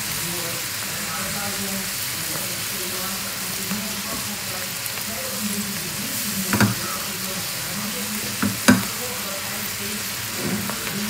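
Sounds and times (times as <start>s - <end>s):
spinach sizzling in frying pan: 0.0s - 11.0s
spatula knocking against pan: 6.5s - 6.8s, 8.3s - 8.9s.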